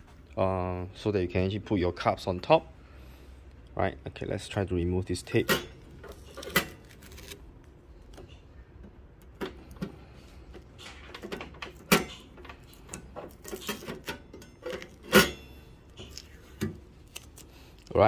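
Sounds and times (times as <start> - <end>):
tape peeling off plastic: 6.0 - 8.2, 15.9 - 18.0.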